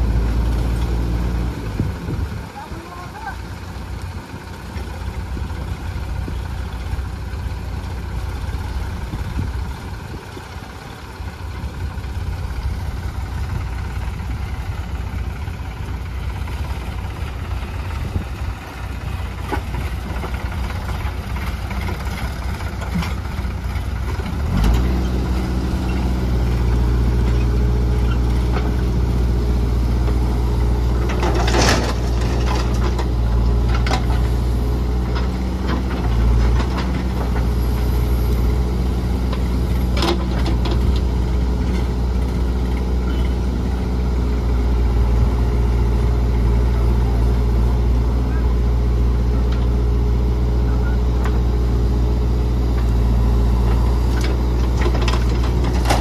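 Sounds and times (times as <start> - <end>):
diesel backhoe engine running: 0.0 - 56.0
tractor engine: 0.0 - 56.0.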